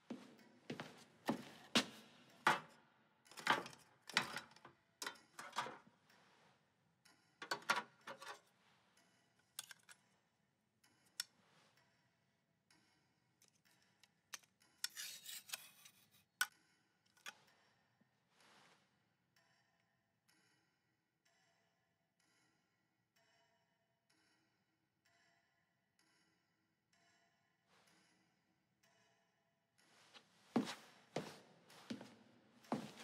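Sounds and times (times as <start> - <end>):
razor scraping strokes: 14.8 - 16.2.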